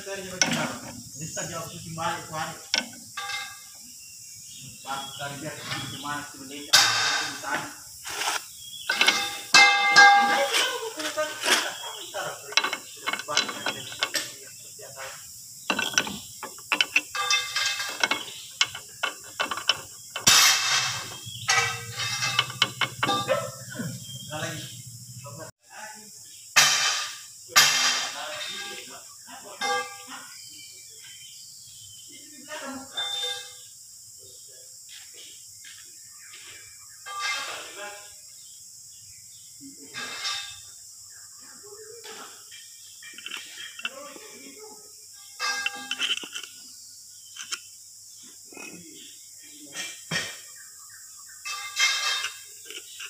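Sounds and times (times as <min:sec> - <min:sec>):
metal scraping: 0:00.0 - 0:03.8, 0:05.3 - 0:24.9, 0:26.6 - 0:29.0, 0:40.0 - 0:40.6, 0:45.4 - 0:46.6, 0:51.5 - 0:53.0
steady high hiss: 0:00.0 - 0:53.0
metallic clicks and knocks: 0:00.4 - 0:03.6, 0:08.9 - 0:10.4, 0:12.4 - 0:14.5, 0:15.7 - 0:23.7, 0:43.0 - 0:44.0, 0:45.4 - 0:46.6, 0:47.3 - 0:47.7.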